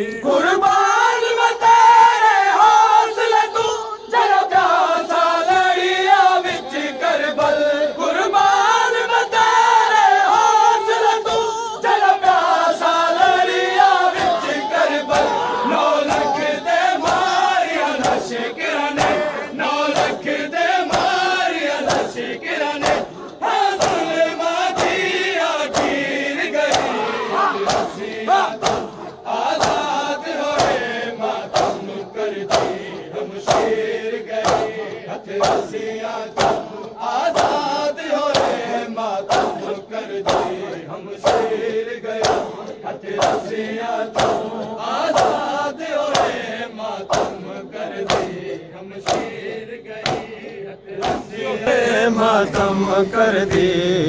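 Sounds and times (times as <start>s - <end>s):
men chanting together: 0.0s - 54.0s
hands slapping bare chests: 14.0s - 37.7s, 38.3s - 38.7s, 39.3s - 41.6s, 42.2s - 46.5s, 47.1s - 51.5s.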